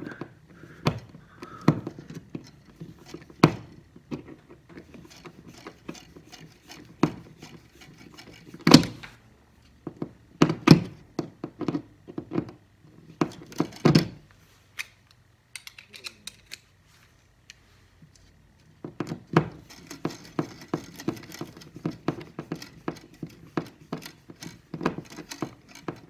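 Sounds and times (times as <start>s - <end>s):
screwdriver turning screws: 4.8s - 8.9s, 19.5s - 26.0s.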